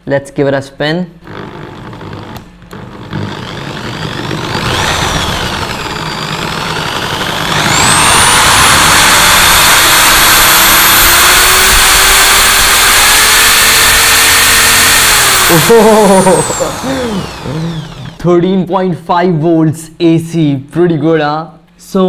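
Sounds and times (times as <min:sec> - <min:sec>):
electric drill high whine: 0:01.2 - 0:18.2.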